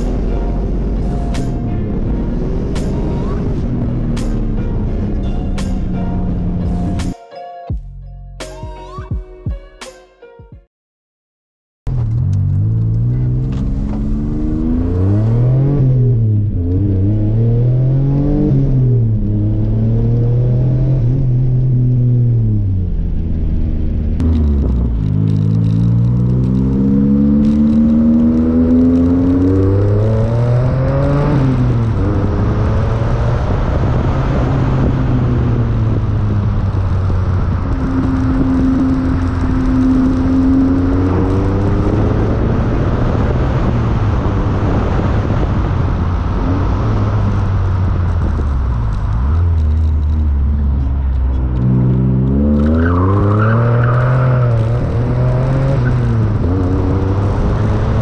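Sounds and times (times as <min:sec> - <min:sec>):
car engine revving: 0:11.9 - 0:58.0.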